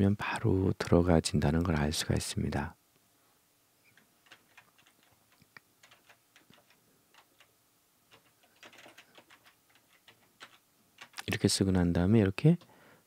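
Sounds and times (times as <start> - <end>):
faint keyboard typing: 3.8 - 11.7, 12.4 - 12.8.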